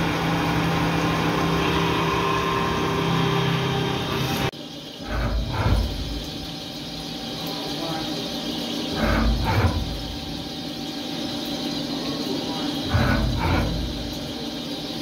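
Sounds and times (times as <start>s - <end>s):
milling machine cutting metal: 0.0s - 6.8s, 8.1s - 10.5s, 12.2s - 14.6s.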